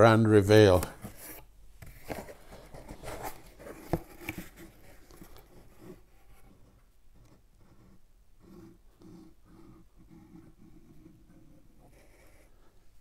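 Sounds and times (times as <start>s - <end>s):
cardboard rustling and scraping: 0.7s - 6.8s.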